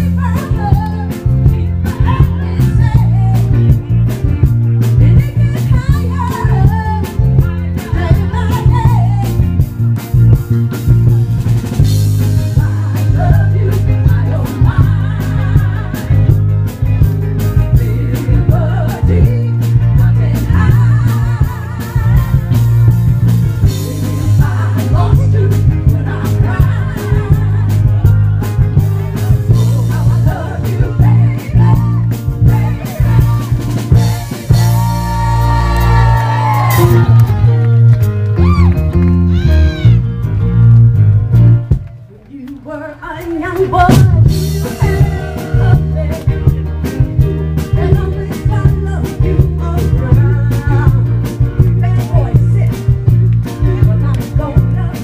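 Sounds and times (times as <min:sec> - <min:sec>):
heavy booming bass: 0:00.0 - 0:41.9, 0:43.9 - 0:55.0
band with electric guitar and drums: 0:00.0 - 0:55.0
female vocal group singing: 0:12.4 - 0:16.4, 0:17.6 - 0:22.5, 0:23.6 - 0:27.6, 0:29.2 - 0:36.1, 0:42.7 - 0:46.6, 0:47.6 - 0:51.2, 0:53.5 - 0:55.0.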